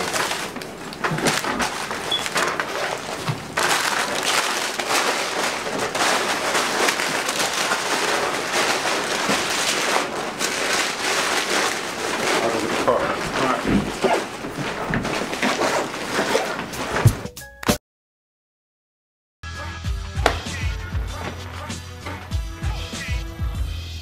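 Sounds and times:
nylon backpack rustling: 0:00.0 - 0:17.3
paper bags crinkling: 0:00.0 - 0:17.3.

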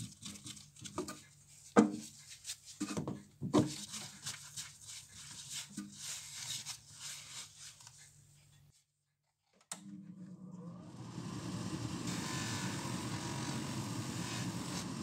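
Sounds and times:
polishing motor humming: 0:10.7 - 0:15.0.

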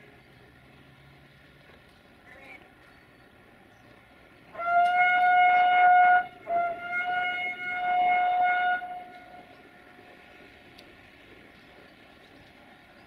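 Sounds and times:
locomotive horn blasts: 0:04.5 - 0:09.6.

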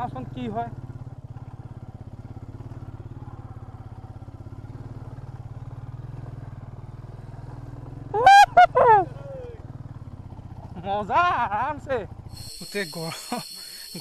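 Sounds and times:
motorcycle engine running: 0:00.0 - 0:14.0
horn beeps: 0:12.4 - 0:14.0.

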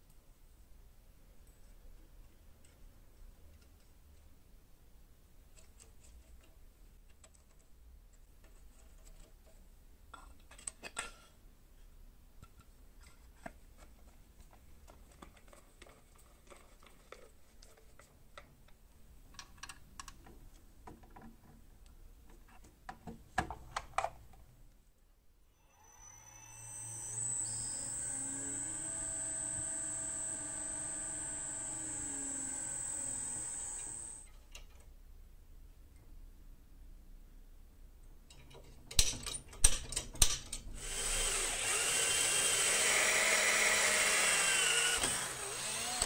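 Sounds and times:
low steady hum: 0:25.8 - 0:34.3
clicks of small metal parts: 0:38.3 - 0:40.7.

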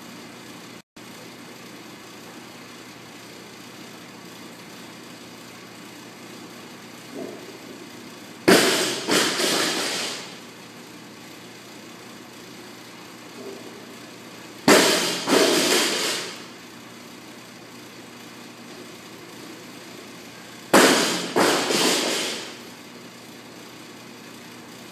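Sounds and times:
barbell crashing onto floor: 0:08.5 - 0:10.4, 0:14.7 - 0:16.4, 0:20.8 - 0:22.6.

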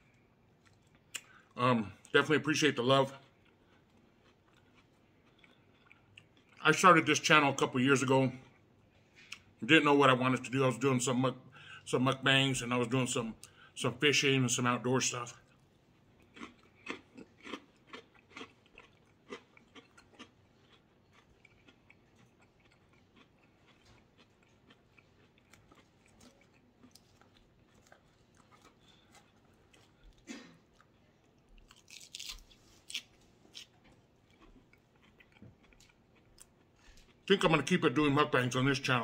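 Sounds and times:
close-up chewing: 0:03.2 - 0:06.6, 0:15.4 - 0:37.3.

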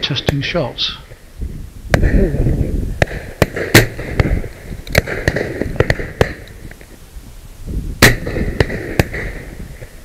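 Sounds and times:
shotgun shots: 0:03.0 - 0:06.5, 0:08.0 - 0:09.6.

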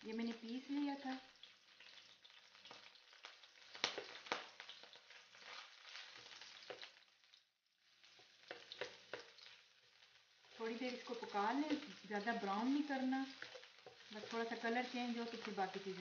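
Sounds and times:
paste sizzling in hot oil: 0:00.0 - 0:16.0
wooden spatula scraping a pan: 0:03.6 - 0:07.0, 0:08.0 - 0:16.0.

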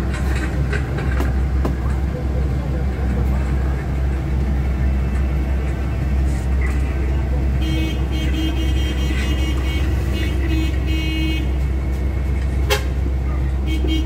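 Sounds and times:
bus engine drone: 0:00.0 - 0:14.0
vehicle horn short blasts: 0:12.7 - 0:13.0.

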